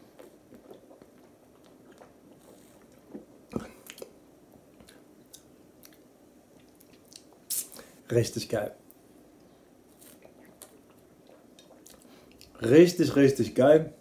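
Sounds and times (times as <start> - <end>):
person swallowing and drinking: 0.0 - 4.2, 10.2 - 12.6
mouth clicks: 6.6 - 7.9.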